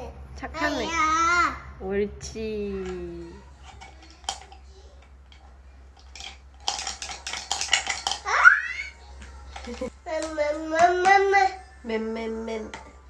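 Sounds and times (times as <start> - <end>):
child's voice: 0.5 - 1.7.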